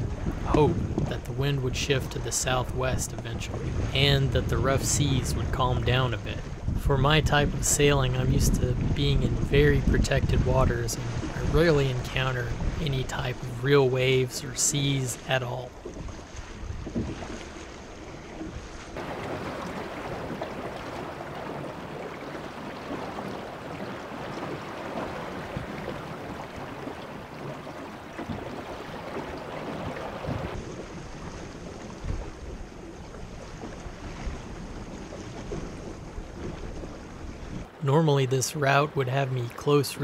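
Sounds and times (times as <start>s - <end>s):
low thumps: 0.0s - 1.4s, 6.6s - 13.4s
wind buffeting microphone: 0.0s - 37.7s
water rushing along a boat hull: 0.0s - 40.0s.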